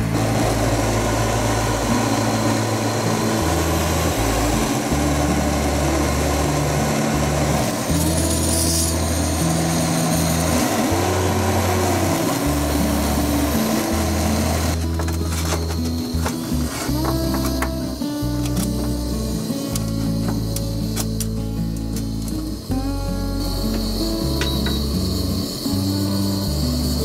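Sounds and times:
electric fan rushing: 0:00.0 - 0:21.2
music with stepping bass line: 0:00.0 - 0:27.0.

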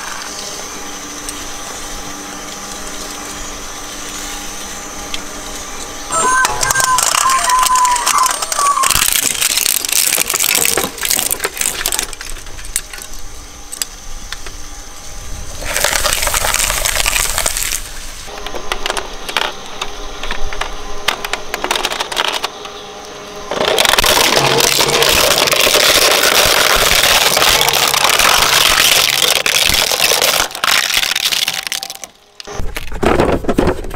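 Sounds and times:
steady machine hum: 0:00.0 - 0:33.9
shredder crunching plastic: 0:06.1 - 0:13.1, 0:15.5 - 0:19.6, 0:20.3 - 0:22.6, 0:23.5 - 0:33.9.

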